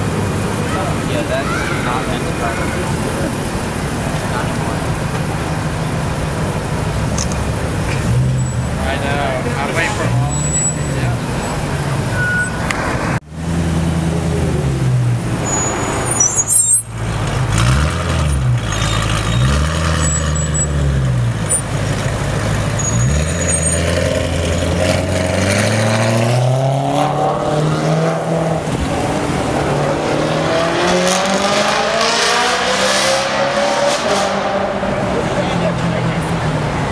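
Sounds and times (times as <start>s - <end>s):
car engine revving: 16.9s - 36.9s.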